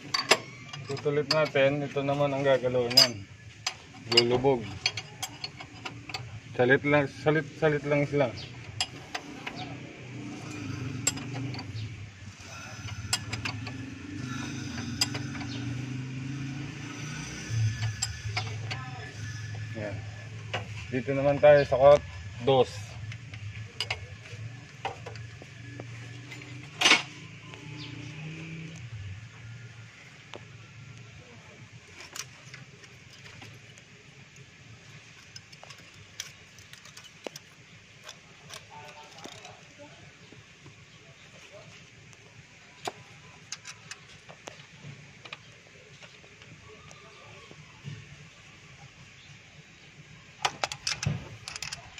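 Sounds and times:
engine humming: 0.0s - 46.9s
sharp metallic clicks: 8.3s - 19.9s, 50.4s - 51.9s.

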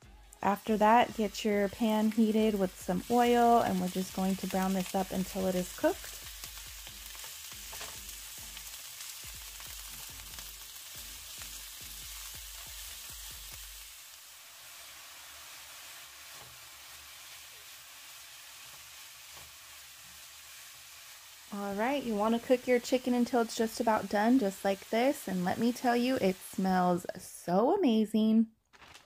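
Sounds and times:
meat sizzling in hot oil: 0.2s - 27.1s
spatula scraping and tapping pan: 6.8s - 8.7s, 18.6s - 19.6s.

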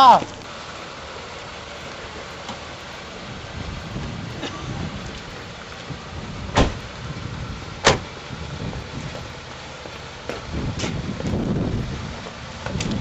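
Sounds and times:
car doors slamming: 5.9s - 6.9s, 7.8s - 8.2s.

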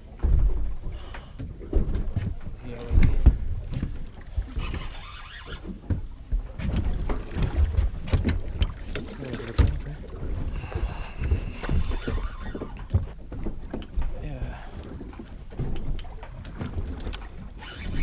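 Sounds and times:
wind buffeting microphone: 5.6s - 18.0s
sharp clicks and knocks: 11.3s - 14.2s, 15.5s - 18.0s.

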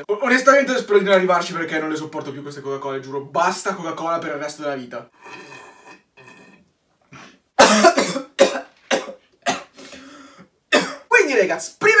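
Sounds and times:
man coughing: 7.6s - 11.1s
faint breathing: 9.7s - 10.6s.

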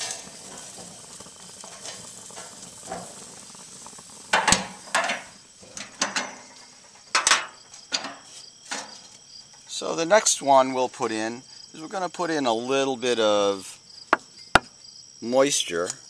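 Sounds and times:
vegetables sizzling in a pan: 0.0s - 8.4s.

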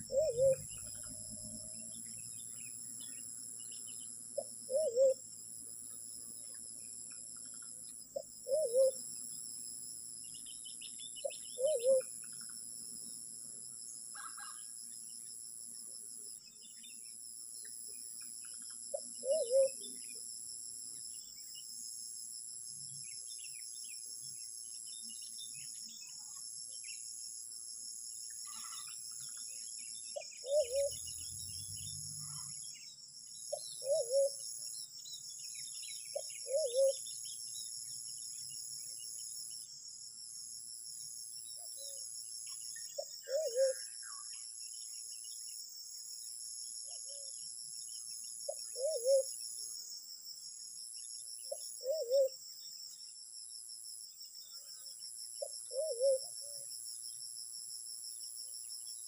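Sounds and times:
pigeon cooing: 0.0s - 0.7s, 4.4s - 5.2s, 8.4s - 9.0s, 11.6s - 12.1s, 19.2s - 19.8s, 30.4s - 31.0s, 33.8s - 34.4s, 36.4s - 37.0s, 43.3s - 43.8s, 48.8s - 49.3s, 51.8s - 52.4s, 55.7s - 56.2s
insects droning: 0.0s - 59.0s.

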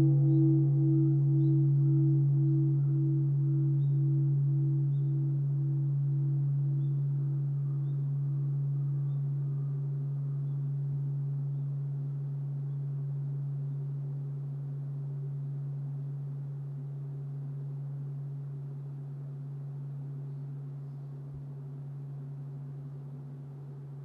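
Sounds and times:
temple bell humming: 0.0s - 16.2s.

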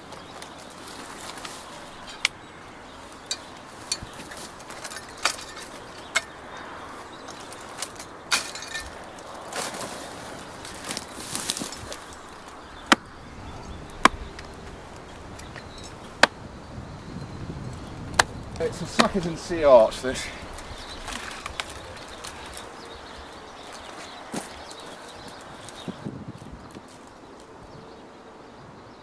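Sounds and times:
brushwood rustling and crackling: 0.0s - 28.3s
billhook chopping hedge stems: 3.2s - 6.5s, 7.3s - 13.1s, 15.5s - 16.4s, 18.1s - 19.4s.

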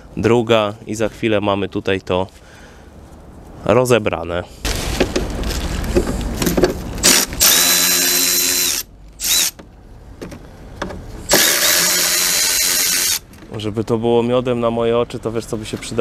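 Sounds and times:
drill-driver motor whine: 7.0s - 9.6s, 11.3s - 13.2s.

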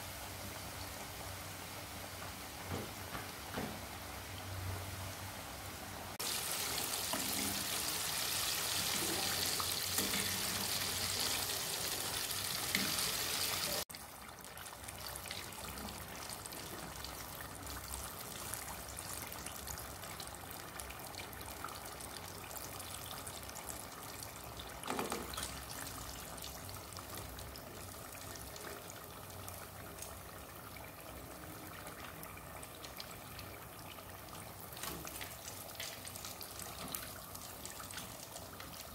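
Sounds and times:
chicken deep-frying in oil: 0.0s - 38.9s.

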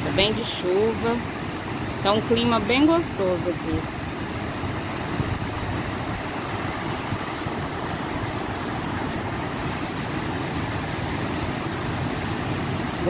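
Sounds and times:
river rushing over waterfalls: 0.0s - 13.0s
wind buffeting microphone: 3.8s - 13.0s.

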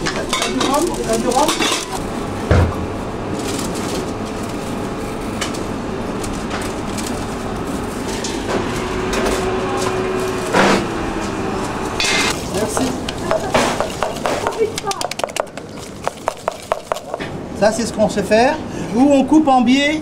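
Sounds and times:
kitchen din: 0.0s - 3.0s, 12.0s - 17.4s.

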